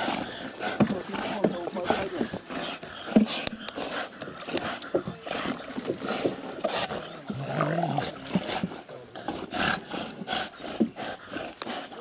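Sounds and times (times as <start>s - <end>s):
dog growling: 6.7s - 8.4s.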